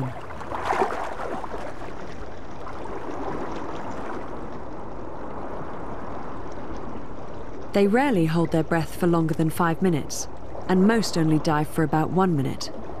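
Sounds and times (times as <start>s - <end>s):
underwater rushing water: 0.0s - 8.4s
water bubbling and gurgling: 0.0s - 13.0s.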